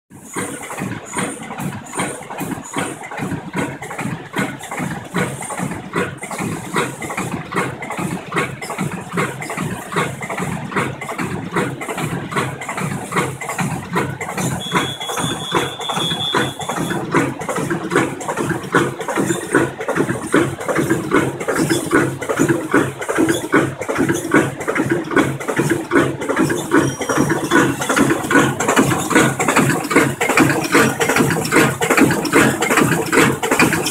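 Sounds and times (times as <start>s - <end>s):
machine mechanical clatter: 0.2s - 33.9s
high steady tone: 14.4s - 17.1s.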